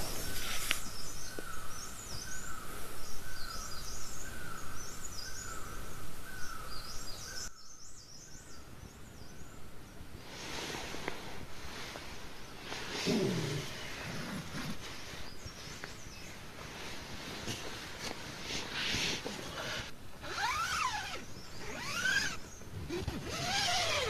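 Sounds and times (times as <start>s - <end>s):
birds twittering: 0.0s - 10.1s, 11.7s - 24.0s
steady background hiss: 0.0s - 24.0s.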